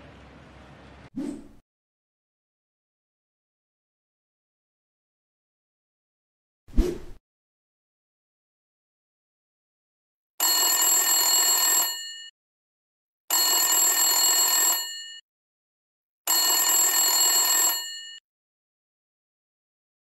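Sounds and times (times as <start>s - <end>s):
telephone ringing: 10.4s - 12.3s, 13.3s - 15.2s, 16.3s - 18.2s.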